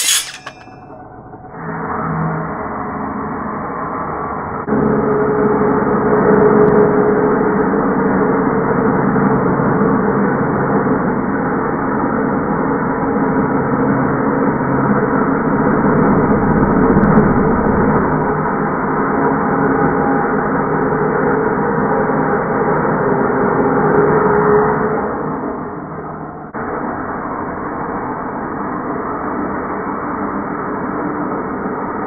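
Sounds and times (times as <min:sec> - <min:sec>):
circular saw cutting wood: 0:00.0 - 0:00.8.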